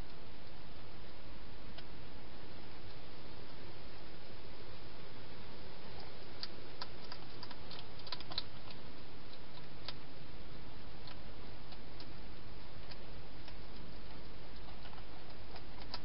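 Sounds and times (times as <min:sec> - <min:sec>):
steady hiss: 0:00.0 - 0:16.0
hedgehog eating crunches: 0:05.8 - 0:16.0.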